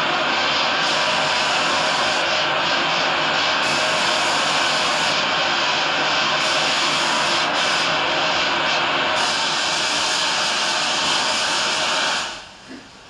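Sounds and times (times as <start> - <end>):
loud rushing noise: 0.0 - 12.4.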